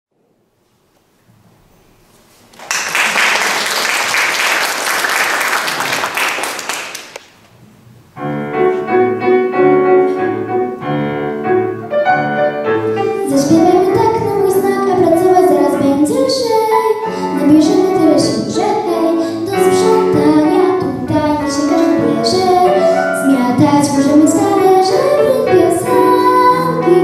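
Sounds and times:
audience applauding: 2.5s - 7.2s
piano backing track: 7.1s - 27.0s
girl singing into microphone: 13.0s - 27.0s.

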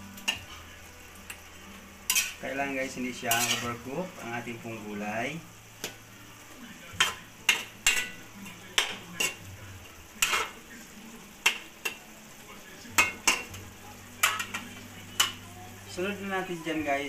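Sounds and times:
faint steady sizzle: 0.0s - 17.0s
spatula clanking against wok: 2.0s - 2.4s, 3.3s - 3.8s, 7.0s - 9.5s, 10.2s - 10.6s, 11.4s - 12.0s, 13.0s - 13.6s, 14.2s - 15.5s.

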